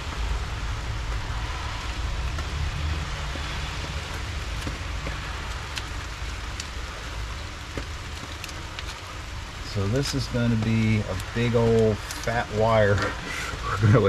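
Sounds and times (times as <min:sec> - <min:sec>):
background hiss: 0:00.0 - 0:14.0
low rumble: 0:00.0 - 0:14.0
hands handling wire and tape: 0:09.9 - 0:14.0.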